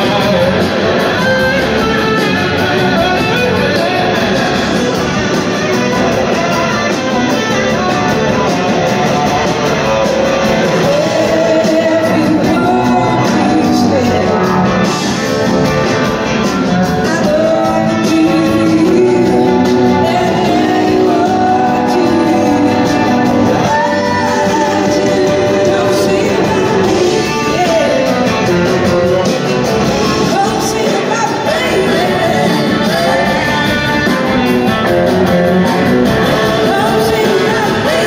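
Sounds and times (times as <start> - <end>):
lead singer: 0.0 - 38.0
live rock band playing: 0.0 - 38.0
backing vocalists: 8.6 - 38.0.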